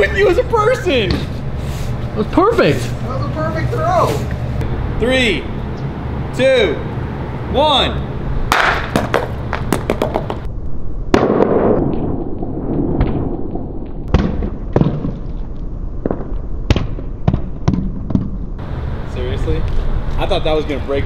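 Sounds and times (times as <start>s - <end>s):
glass dish bouncing on asphalt: 8.6s - 10.5s.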